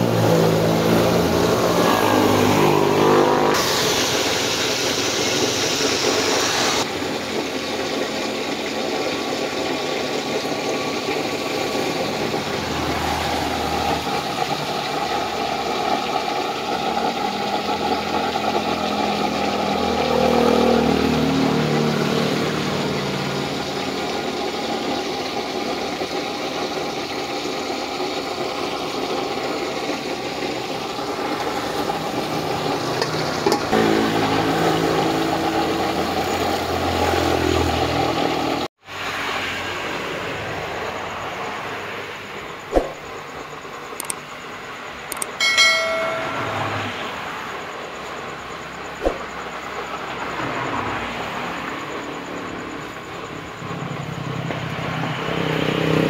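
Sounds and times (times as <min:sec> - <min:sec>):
stove burner hissing: 0:00.0 - 0:20.6, 0:21.5 - 0:39.4
engine-like drone: 0:00.0 - 0:26.8, 0:28.4 - 0:44.2, 0:45.1 - 0:56.0
chicken sizzling in hot oil: 0:00.0 - 0:44.5.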